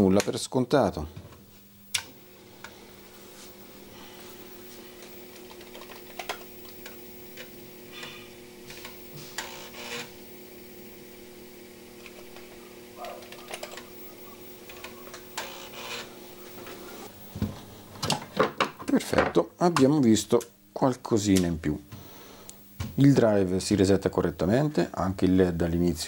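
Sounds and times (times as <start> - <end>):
floppy drive motor humming: 1.1 - 18.8.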